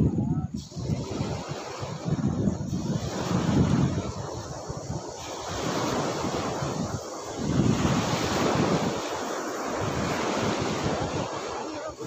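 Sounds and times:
small waves washing: 0.0s - 12.0s
wind buffeting microphone: 0.0s - 12.0s.

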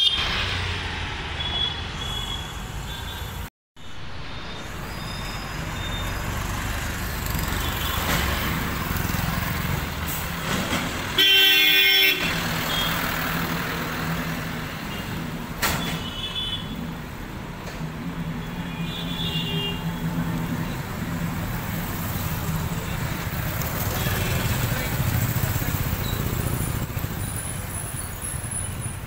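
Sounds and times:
street traffic engines: 0.0s - 29.0s
vehicle horn blast: 11.2s - 12.9s.

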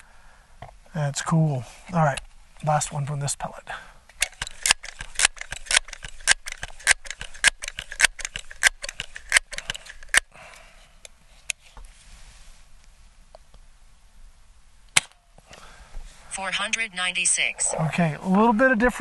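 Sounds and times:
air pistol pump lever strokes: 4.1s - 10.3s.

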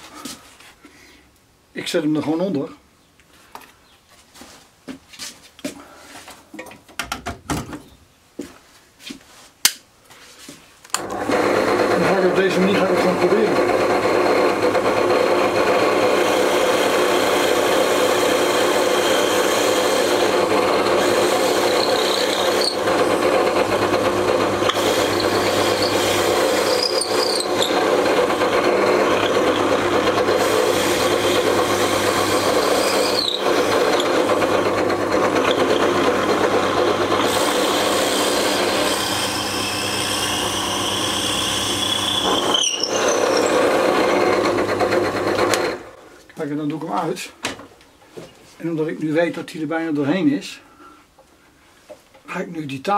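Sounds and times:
drill bit scraping wood: 11.0s - 46.0s
drill press motor hum: 11.0s - 46.0s
high squeaks: 21.1s - 23.2s, 24.6s - 28.0s, 32.3s - 34.3s, 39.8s - 43.8s.

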